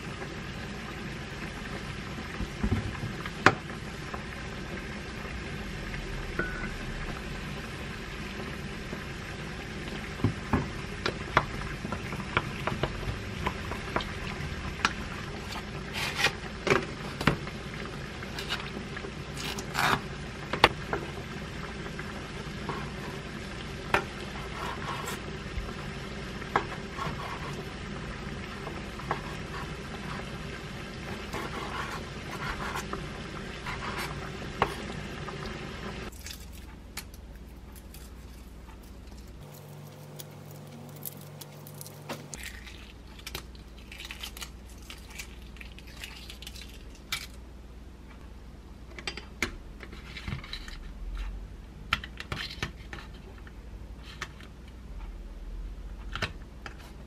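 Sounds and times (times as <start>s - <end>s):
egg shell peeling: 36.1s - 47.4s
low hum: 37.6s - 42.8s.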